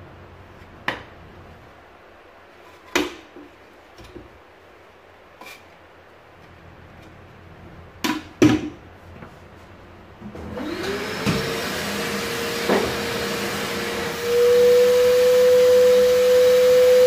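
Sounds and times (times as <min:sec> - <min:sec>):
vacuum cleaner motor running: 0:10.2 - 0:17.0.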